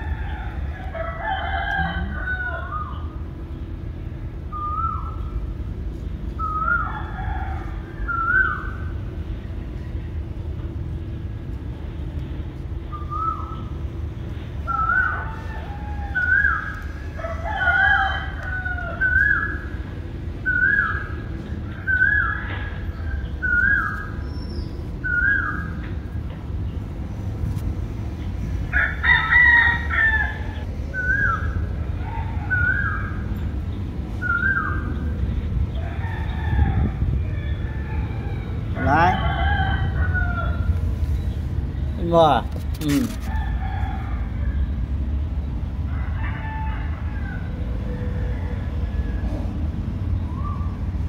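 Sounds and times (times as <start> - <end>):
chickens calling: 0.0 - 3.3, 12.9 - 26.7, 28.0 - 41.8
low steady rumble: 0.0 - 51.0.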